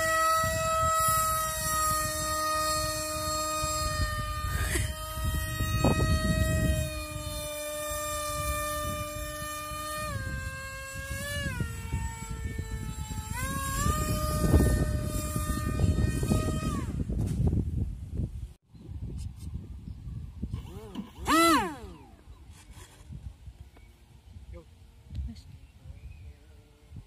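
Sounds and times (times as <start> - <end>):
electric motor whine: 0.0 - 17.7, 20.4 - 24.1
wind rumbling on microphone: 0.0 - 27.0.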